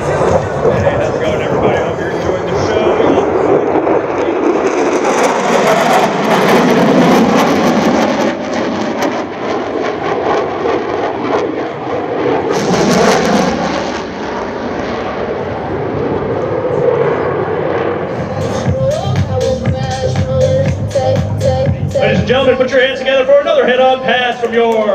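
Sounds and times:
jet engines roaring with crackle: 0.0 - 24.9.

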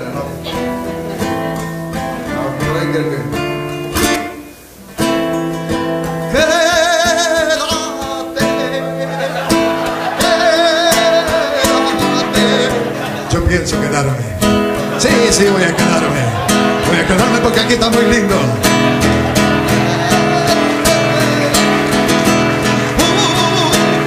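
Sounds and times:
acoustic guitar strumming: 0.0 - 24.0
man singing with vibrato: 0.0 - 24.0.

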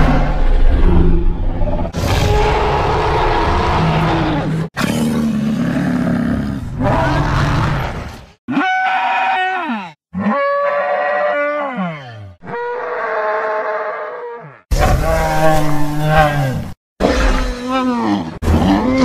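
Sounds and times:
dinosaur roars: 0.0 - 8.2.

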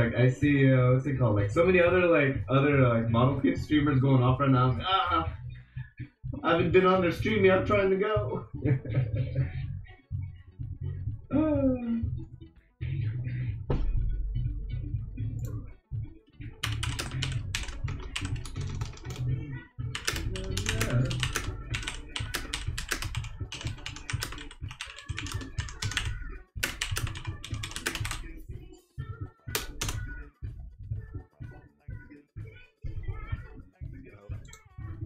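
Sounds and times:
background music with bass line: 0.0 - 35.0
computer keyboard typing: 16.6 - 19.3, 19.9 - 28.3, 29.5 - 30.1.

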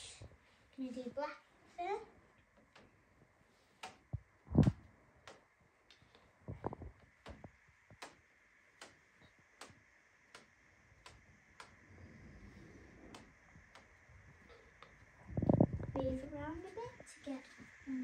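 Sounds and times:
soft low thumps: 2.6 - 5.4, 11.0 - 17.0
clock ticking: 8.8 - 11.8.

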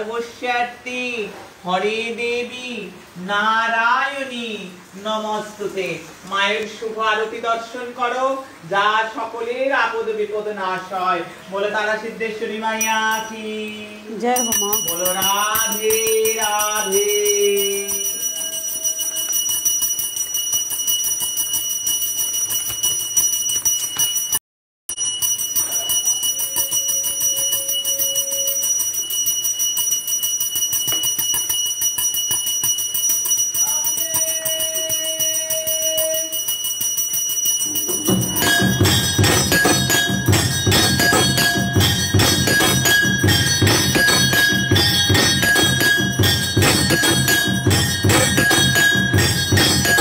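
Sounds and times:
bell ringing rapidly: 12.8 - 13.4, 14.2 - 50.0
louder fuller clanging: 37.6 - 50.0.

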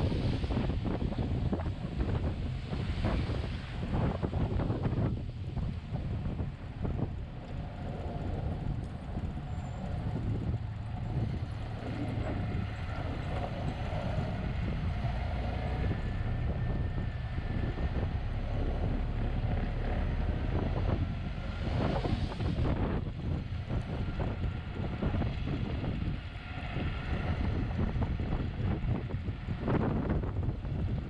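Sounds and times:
wind noise in cab: 0.0 - 31.0
truck engine running: 5.8 - 26.9.

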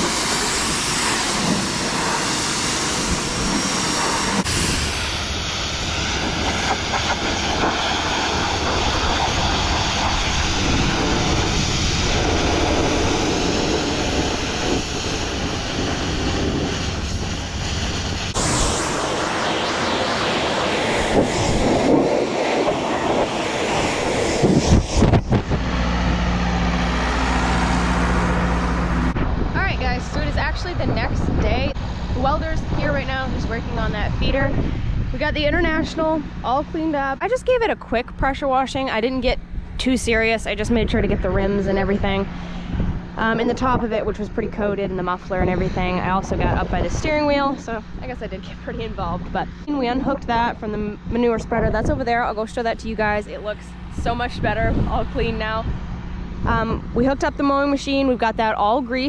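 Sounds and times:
pressure washer water jet hissing: 0.0 - 29.2
low engine hum: 0.0 - 59.0.

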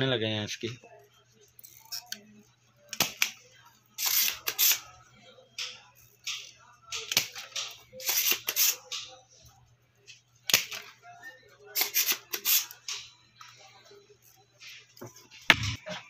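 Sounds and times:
desoldering pump snapping: 5.6 - 9.0.

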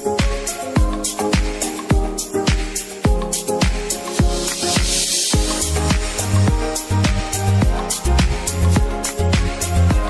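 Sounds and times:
kick drum: 0.0 - 10.0
bass line: 5.4 - 10.0.

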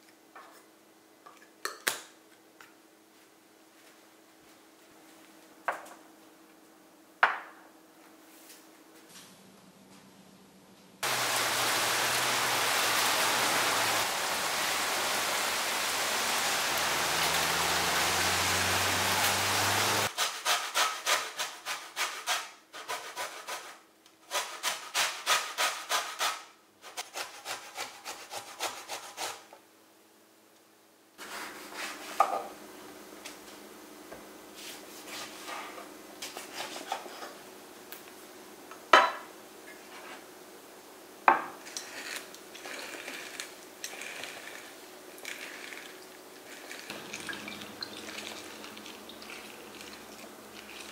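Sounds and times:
loud steady hiss: 11.0 - 20.2.

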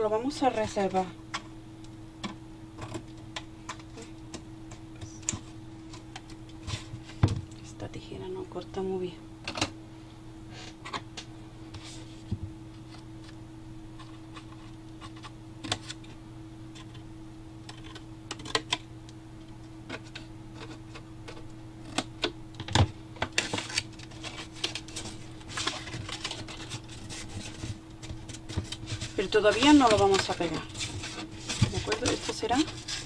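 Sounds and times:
faint steady hum: 0.0 - 33.0
cardboard crackling and rustling: 19.9 - 33.0.

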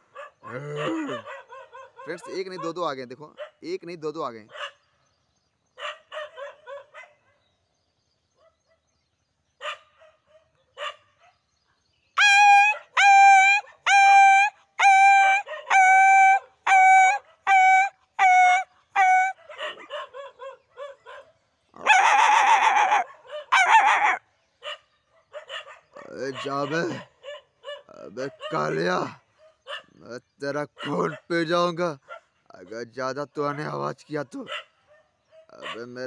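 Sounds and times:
dog barking: 0.1 - 3.6, 4.5 - 4.9, 5.8 - 7.5, 8.4 - 8.9, 9.6 - 11.5, 15.4 - 15.8, 19.0 - 30.0, 30.8 - 31.4, 32.0 - 32.4, 33.5 - 36.0.

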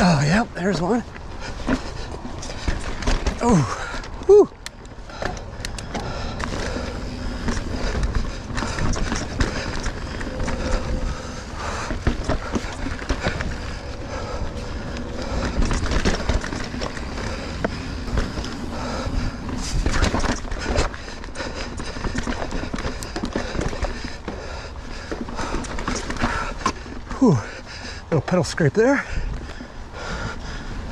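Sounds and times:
bike knocking and rattling: 0.0 - 30.9
bike tyres on dirt and rock: 0.0 - 30.9
low rumble: 5.4 - 22.3.

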